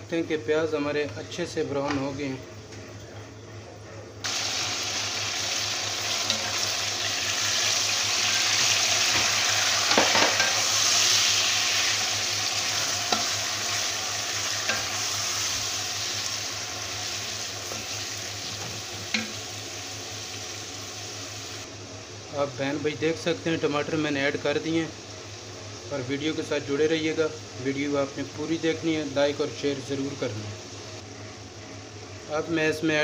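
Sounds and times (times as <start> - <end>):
food sizzling in hot oil: 4.2 - 21.7.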